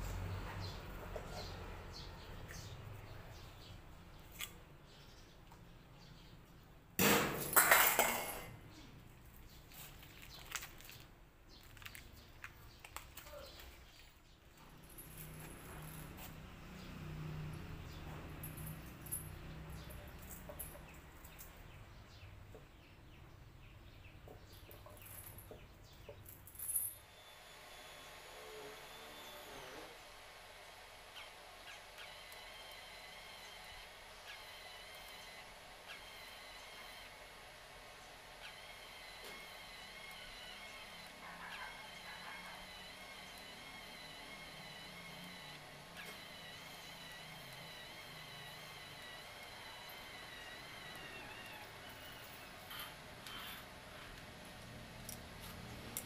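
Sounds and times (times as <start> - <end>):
welding torch and cable clatter: 43.0 - 56.0.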